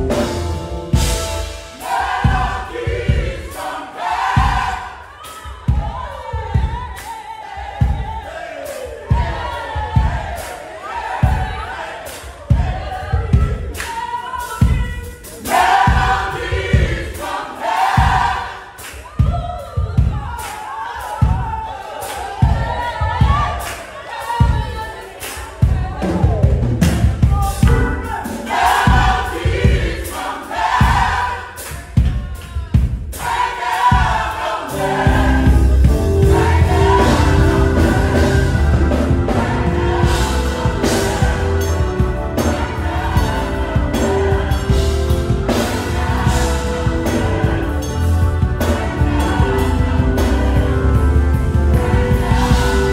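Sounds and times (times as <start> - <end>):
heavy bass: 0.0 - 2.5, 34.8 - 52.9
live band playing: 0.0 - 3.6, 25.6 - 52.9
gospel choir singing in harmony: 0.0 - 52.9.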